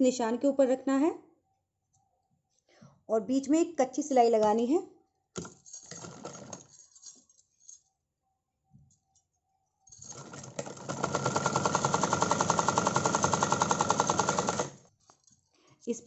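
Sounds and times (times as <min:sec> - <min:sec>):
sewing machine stitching: 0:05.4 - 0:06.8, 0:10.0 - 0:14.8.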